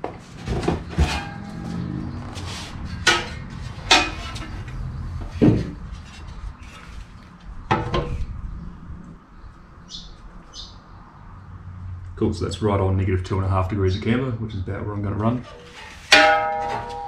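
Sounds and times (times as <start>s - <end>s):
metal plate knocks and clinks: 0.5s - 2.0s, 2.9s - 5.8s, 15.6s - 17.0s.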